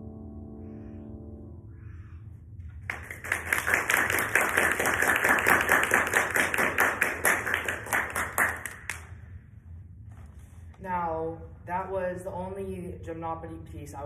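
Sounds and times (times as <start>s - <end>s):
audience applauding: 2.8s - 9.1s.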